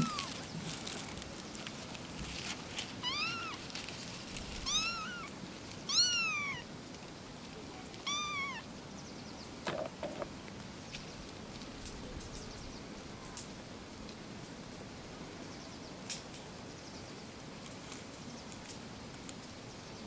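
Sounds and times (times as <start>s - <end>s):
kittens mewing: 0.0s - 0.4s, 3.0s - 3.6s, 4.6s - 6.7s, 8.0s - 8.6s.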